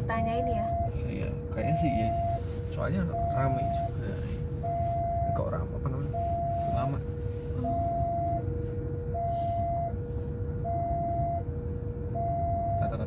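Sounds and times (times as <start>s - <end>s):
idling traffic rumble: 0.0s - 13.0s
level crossing alarm two-tone: 0.2s - 1.0s, 1.6s - 4.0s, 4.6s - 5.5s, 6.1s - 6.9s, 7.6s - 8.4s, 9.1s - 10.0s, 10.6s - 11.5s, 12.1s - 12.8s.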